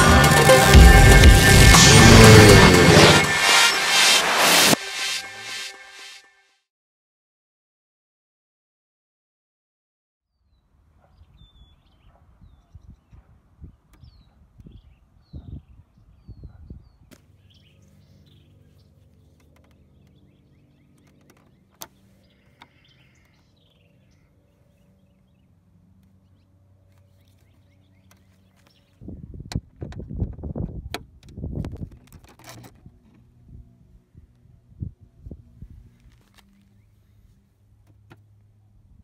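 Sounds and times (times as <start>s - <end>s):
loud low buffeting: 0.0s - 5.8s
birds chirping: 14.0s - 25.5s.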